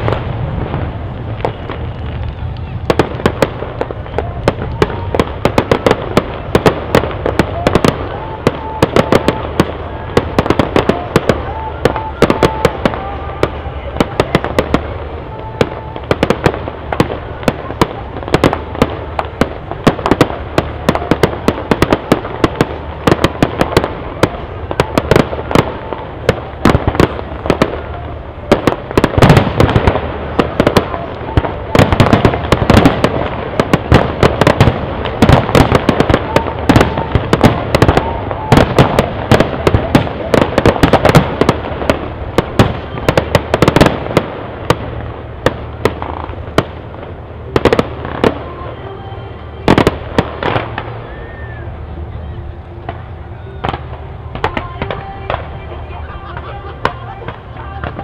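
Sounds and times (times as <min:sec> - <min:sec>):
fireworks bangs and crackles: 0:00.0 - 0:58.0.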